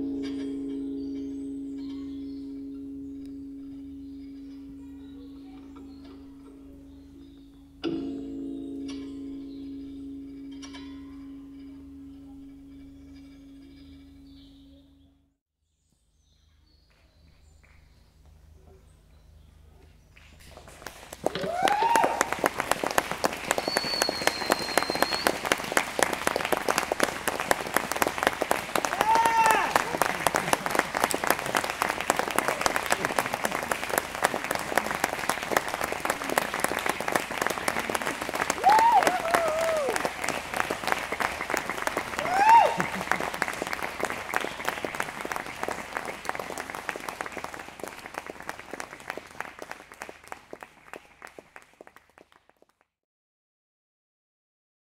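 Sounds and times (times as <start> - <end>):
audience applauding: 20.4 - 52.8
high steady whistle: 23.5 - 25.6.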